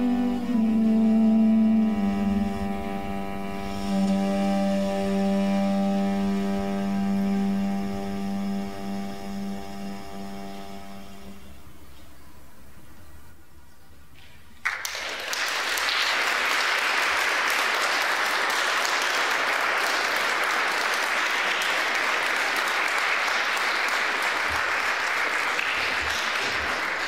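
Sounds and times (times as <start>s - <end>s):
audience applauding: 14.6s - 27.0s.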